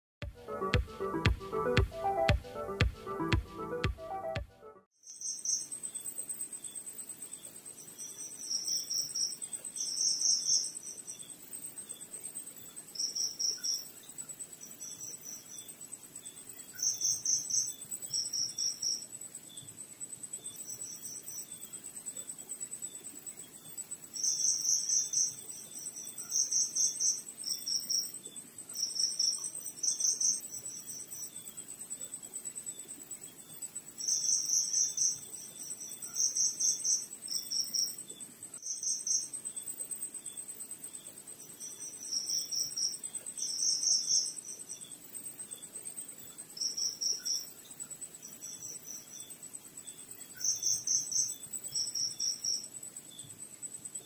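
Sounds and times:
faint cricket chirps: 5.0 - 54.0
high-pitched insect trill: 5.0 - 54.0
loud cricket chirping: 20.4 - 28.1, 28.7 - 54.0.

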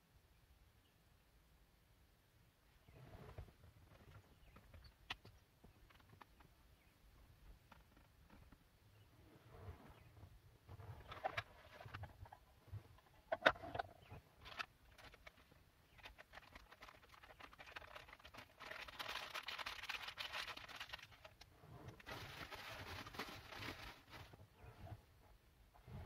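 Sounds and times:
sachet rustling: 14.4 - 24.4
granules poured into plastic cup: 16.0 - 21.3.

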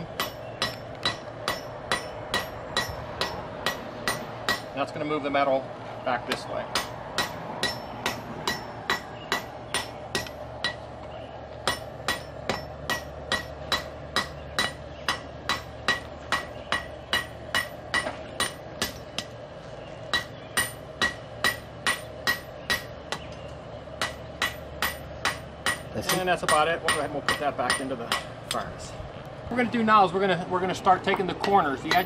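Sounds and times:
hammer ringing on hot metal: 0.0 - 4.8, 6.3 - 10.9, 11.6 - 19.4, 20.1 - 23.2, 24.0 - 28.3, 31.1 - 32.0
steady hum: 0.0 - 32.0.

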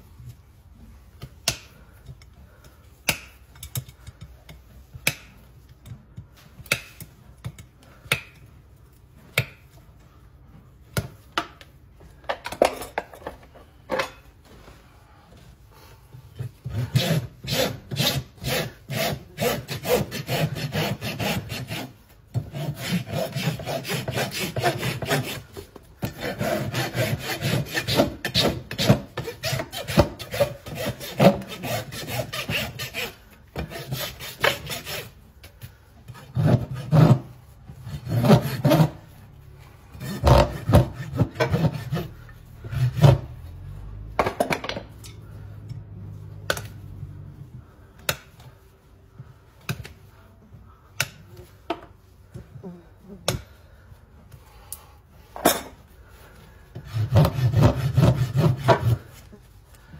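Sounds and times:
rasp scraping hoof: 40.0 - 43.4, 56.8 - 59.2.

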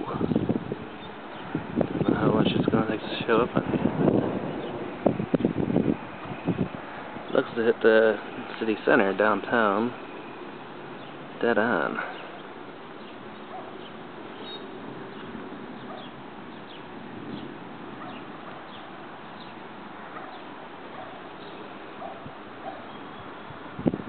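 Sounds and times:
outdoor background hiss: 0.0 - 24.0
bird chirping: 0.3 - 1.6, 9.9 - 23.6.

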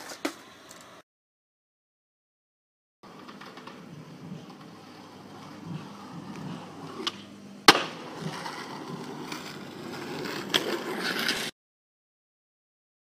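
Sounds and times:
skateboard wheels rolling on concrete: 0.0 - 1.0, 3.0 - 11.6
skateboard tail clicking: 3.1 - 11.5
skateboard landing slap: 7.0 - 8.4.

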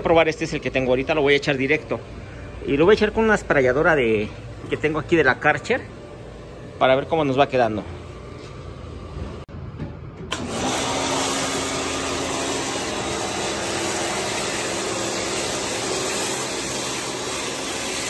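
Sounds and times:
pressure washer motor humming: 10.3 - 18.0
spray gun hissing: 10.9 - 18.0.

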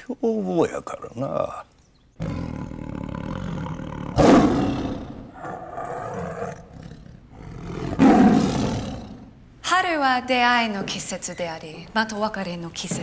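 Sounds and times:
tiger roaring: 2.2 - 9.4.

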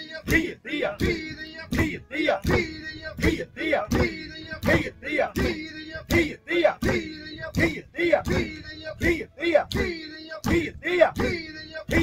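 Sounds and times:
men chanting in unison: 0.0 - 12.0
stamping thuds on wood: 10.4 - 12.0.

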